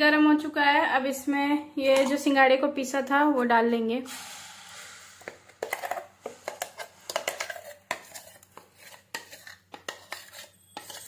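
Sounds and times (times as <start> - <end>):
spoon clinking and scraping: 5.2 - 11.0.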